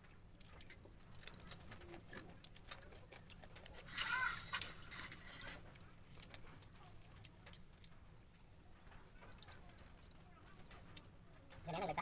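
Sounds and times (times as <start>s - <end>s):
crunching fried chicken bones: 0.0s - 12.0s.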